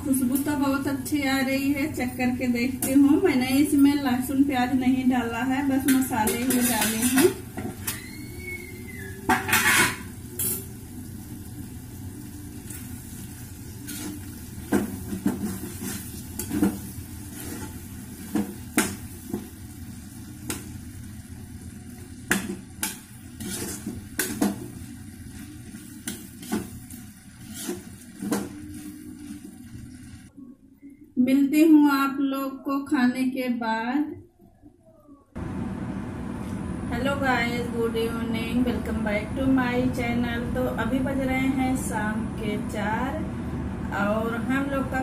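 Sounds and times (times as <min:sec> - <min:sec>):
food sizzling: 0:02.8 - 0:30.3
spoon stirring and scraping pan: 0:05.7 - 0:08.2, 0:09.2 - 0:10.6, 0:12.7 - 0:19.7, 0:22.1 - 0:30.2
steel lid clattering: 0:09.2 - 0:10.6.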